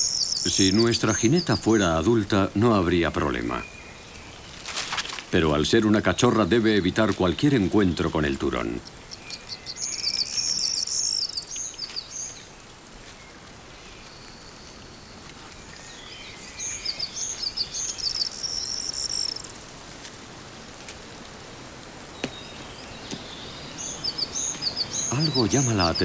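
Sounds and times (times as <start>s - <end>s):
small songbird singing: 0.0s - 4.7s, 5.4s - 19.5s, 22.1s - 26.0s
woodland ambience hiss: 0.0s - 26.0s.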